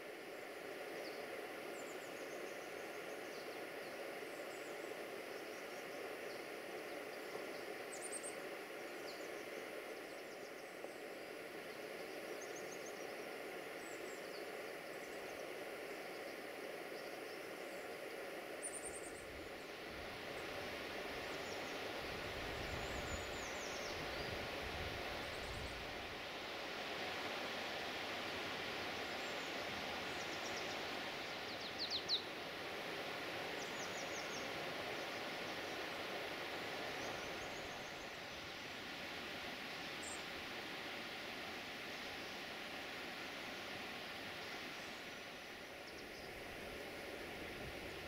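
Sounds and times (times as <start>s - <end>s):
steady hiss: 0.0s - 48.0s.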